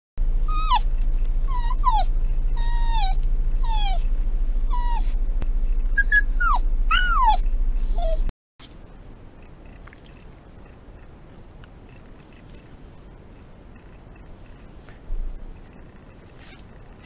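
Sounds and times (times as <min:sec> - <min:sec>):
low hum inside car: 0:00.2 - 0:17.0
dog whining: 0:00.4 - 0:05.2, 0:05.9 - 0:08.3.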